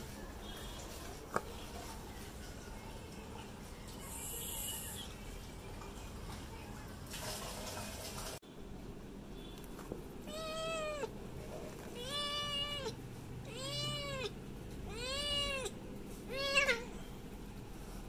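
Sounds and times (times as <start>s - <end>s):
cat meowing: 10.3s - 11.1s, 11.9s - 14.3s, 14.9s - 17.0s.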